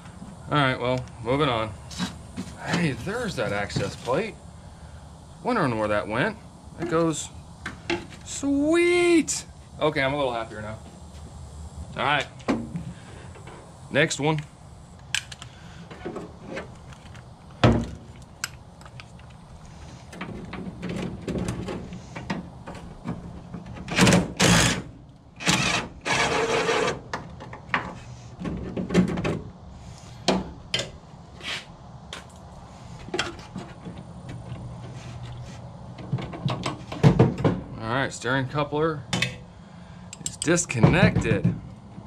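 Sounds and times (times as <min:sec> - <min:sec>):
cordless driver running: 0:25.4 - 0:26.9.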